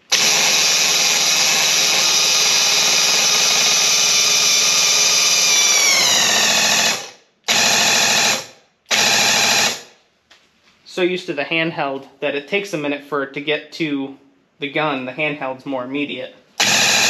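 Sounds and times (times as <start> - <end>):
paint sprayer pump motor running: 0.1 - 9.8, 16.6 - 17.0.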